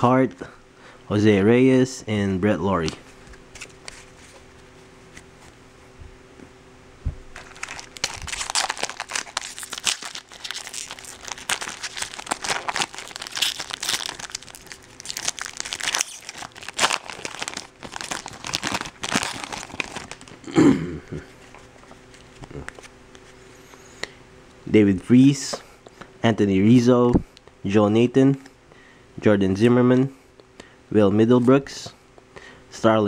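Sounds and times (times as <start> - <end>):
foil wrapper crinkling and tearing: 7.4 - 20.5.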